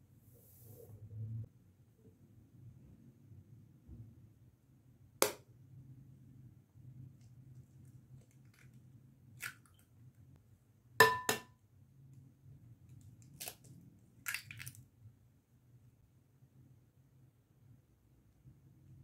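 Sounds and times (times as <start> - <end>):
small eggshell cracks: 8.1 - 8.8, 9.4 - 9.8, 12.9 - 14.8
glass bowl ringing: 11.0 - 11.4
eggs tapping on glass bowl: 11.0 - 11.5.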